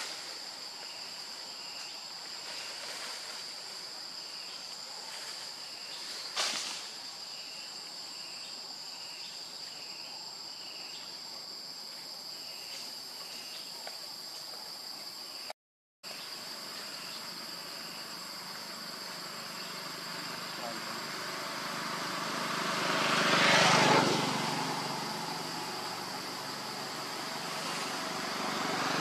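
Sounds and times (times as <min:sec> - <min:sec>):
forest insects droning: 0:00.0 - 0:29.0.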